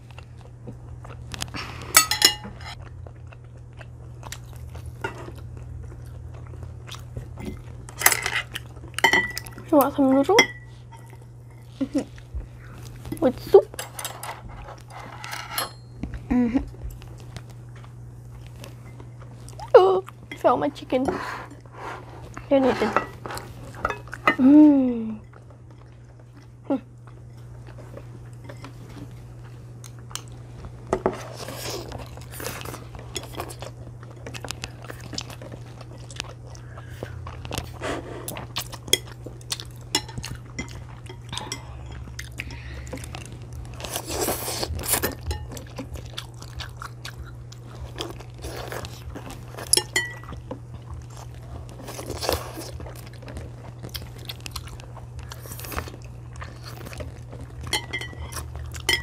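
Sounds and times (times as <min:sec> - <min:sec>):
children chewing and biting: 0:00.0 - 0:10.0, 0:25.3 - 0:59.0
steady low hum: 0:00.0 - 0:59.0.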